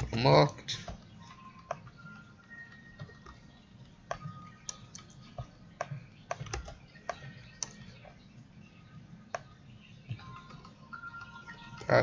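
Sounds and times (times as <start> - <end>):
keyboard keys clicking: 4.0 - 8.1.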